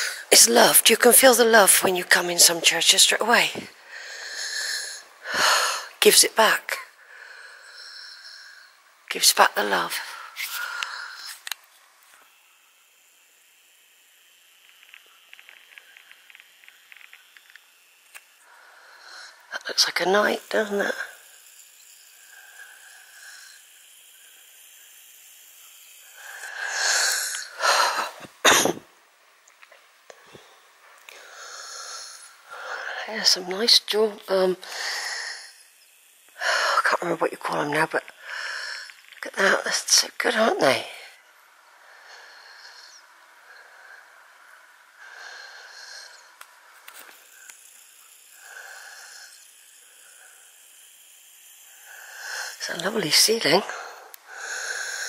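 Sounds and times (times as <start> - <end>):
camera handling clicks: 10.8 - 11.7
person sneezing: 27.9 - 28.8.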